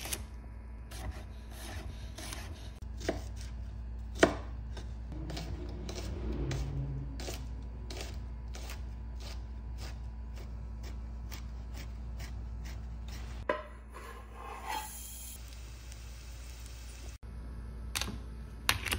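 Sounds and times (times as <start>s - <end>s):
knife chopping on wooden board: 0.9s - 6.0s
knife scraping board: 5.2s - 15.1s.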